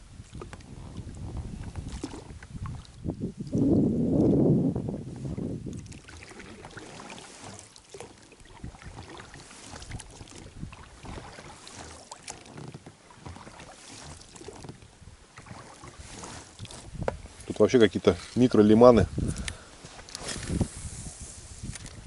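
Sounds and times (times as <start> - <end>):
water splashing and dripping: 1.6 - 3.6, 5.7 - 17.7.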